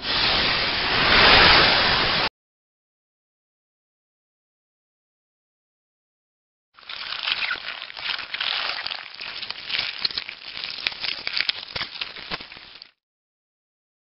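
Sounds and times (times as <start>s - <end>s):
crackling rustling with rapid clicks: 6.8s - 13.0s.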